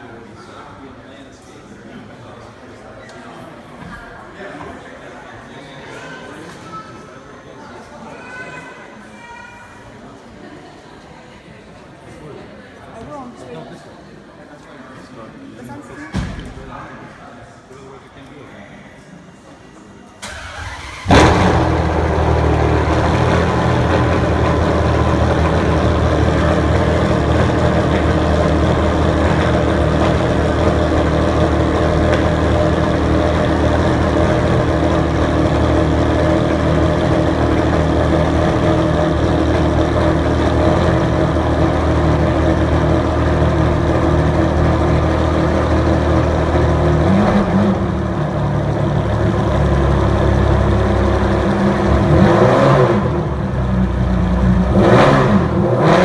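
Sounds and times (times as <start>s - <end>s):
sports car engine starting and idling: 20.1s - 56.0s.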